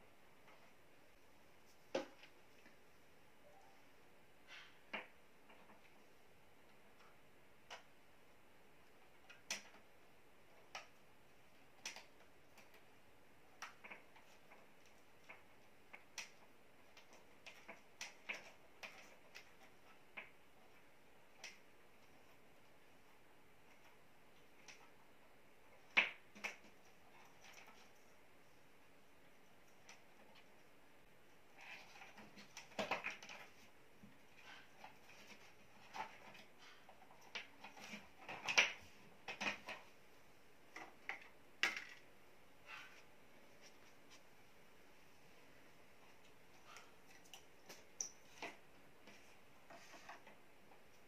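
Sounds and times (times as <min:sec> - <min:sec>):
hands working electrical wires: 0:08.8 - 0:40.0.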